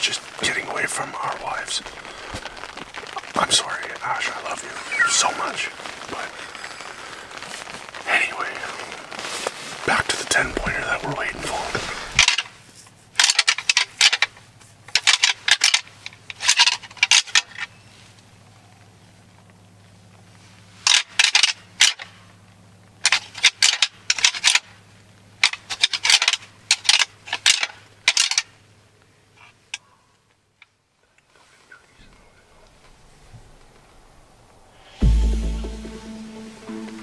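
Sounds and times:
crunching in dry leaves: 1.0 - 29.7.

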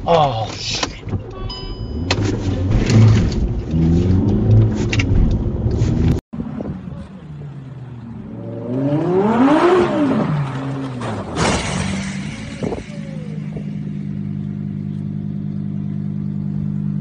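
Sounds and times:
car engine revving: 1.7 - 17.0
car crashing into metal container: 10.8 - 13.4
car engine idling: 12.2 - 17.0.

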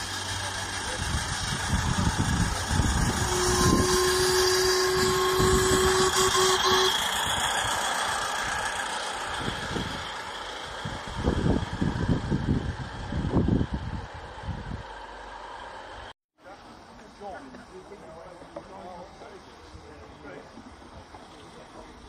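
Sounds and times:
miniature train running on track: 0.0 - 22.0
train warning horn: 2.9 - 7.8.

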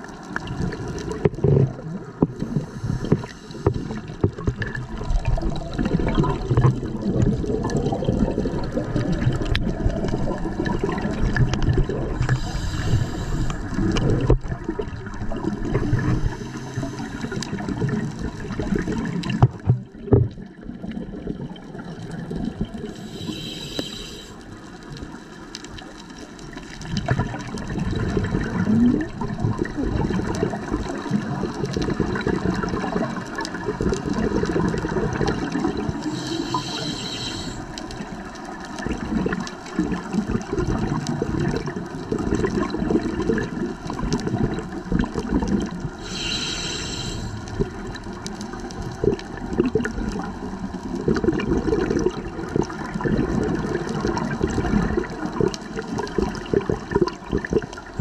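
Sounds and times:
exhaled bubbles gurgling underwater: 0.0 - 58.0
regulator inhalation hiss: 2.5 - 4.0, 12.2 - 13.9, 15.9 - 17.6, 22.8 - 24.5, 36.0 - 37.8, 46.0 - 47.6.

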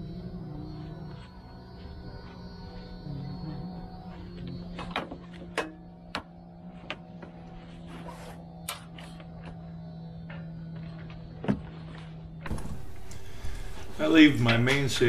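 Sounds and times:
soft background music: 0.0 - 8.1.

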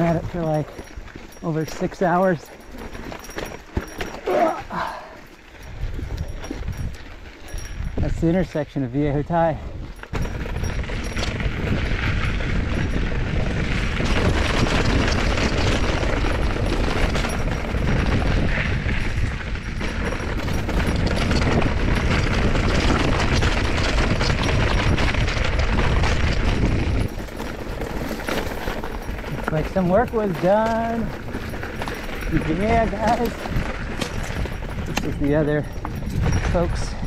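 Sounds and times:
bike rattling over dirt: 0.0 - 37.0.

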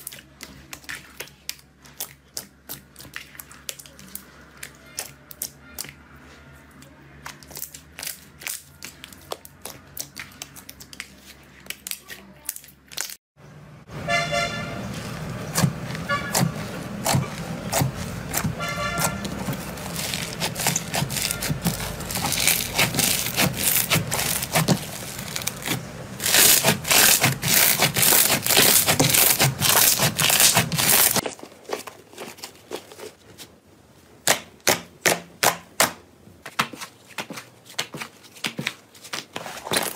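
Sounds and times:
foam-bead slime crackling: 14.8 - 33.6.

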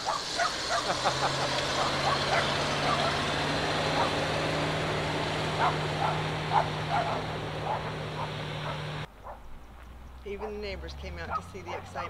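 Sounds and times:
dog barking: 0.0 - 4.3, 5.5 - 9.5, 10.4 - 10.7, 11.3 - 12.0
truck engine humming: 0.0 - 12.0.

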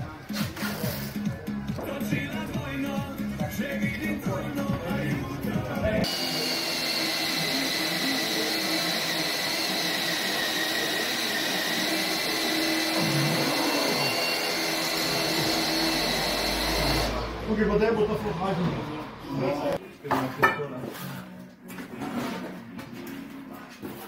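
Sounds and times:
background music: 0.0 - 6.2
power tool high whine: 6.0 - 17.4.

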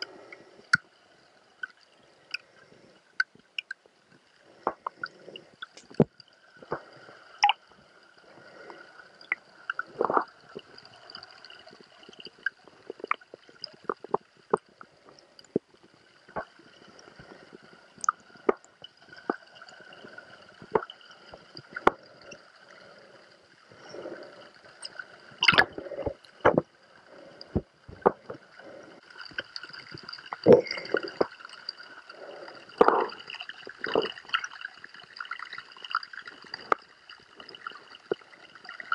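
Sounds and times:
underwater clicks and knocks: 4.7 - 7.6, 9.3 - 10.7, 25.4 - 26.7, 27.4 - 28.5, 32.8 - 33.2
muffled underwater gurgling: 9.3 - 10.8, 30.3 - 31.4, 32.1 - 34.4.

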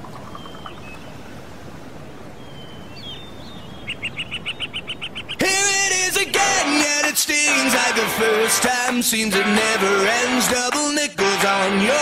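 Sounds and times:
bird chirps: 0.0 - 1.3, 2.4 - 5.5.

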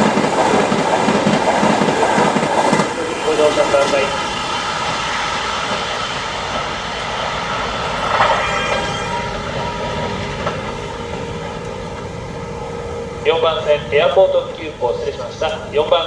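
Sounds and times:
electric train rumbling: 0.0 - 16.0
train motor whine: 2.8 - 14.3.

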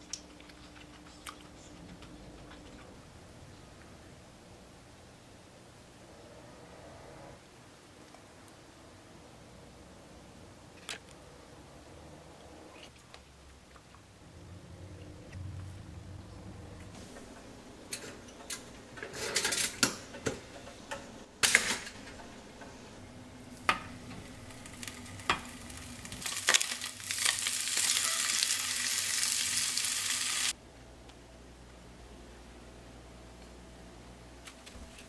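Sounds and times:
utensils clinking against cookware: 17.9 - 22.8
food sizzling in a hot pan: 24.3 - 30.5.

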